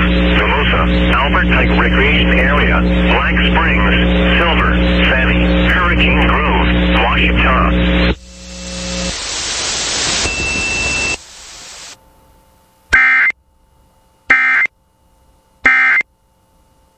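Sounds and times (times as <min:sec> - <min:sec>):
static hiss: 0:05.8 - 0:13.3
digital data tone bursts: 0:10.0 - 0:11.2, 0:12.9 - 0:13.4, 0:14.3 - 0:14.7, 0:15.6 - 0:16.1.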